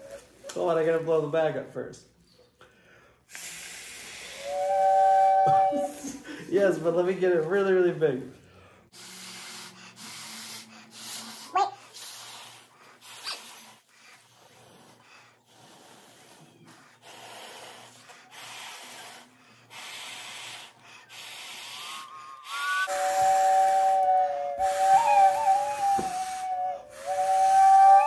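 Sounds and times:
breathy puffs through a straw: 2.7s - 6.4s, 8.4s - 28.0s
two steady piping notes: 21.1s - 28.0s.

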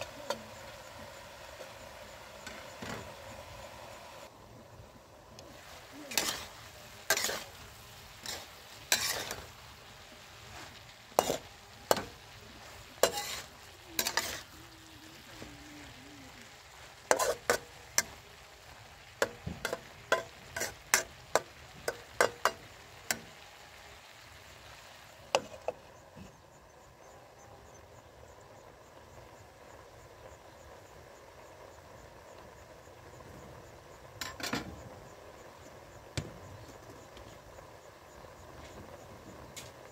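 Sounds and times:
frying sizzle: 0.0s - 39.9s
metal spatula scraping a wok: 5.7s - 15.9s, 16.6s - 18.2s, 19.2s - 23.4s, 34.2s - 34.8s.

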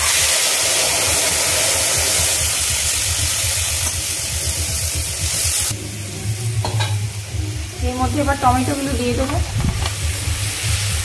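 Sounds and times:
paste sizzling in hot oil: 0.0s - 5.8s, 8.0s - 11.0s.

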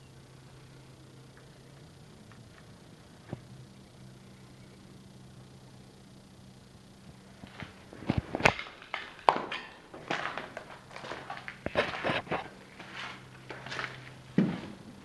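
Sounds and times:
faint low hum: 0.0s - 15.0s
footsteps on wooden floor: 7.5s - 14.8s.

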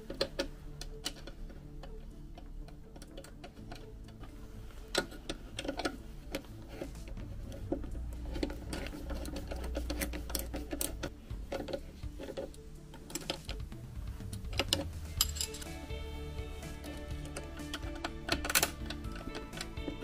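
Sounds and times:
socket ratchet clicking: 14.3s - 20.0s.

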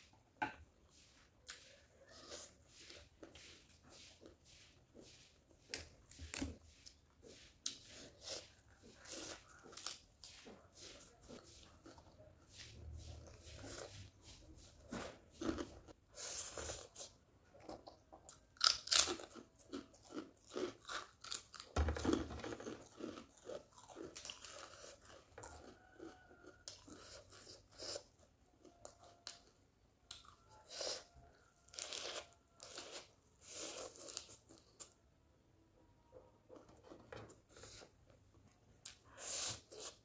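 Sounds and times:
crunching and chewing: 7.6s - 12.2s, 14.9s - 35.0s.

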